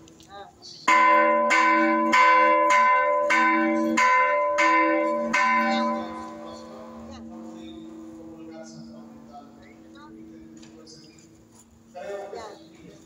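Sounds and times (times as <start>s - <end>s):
church bells ringing: 0.9s - 11.1s.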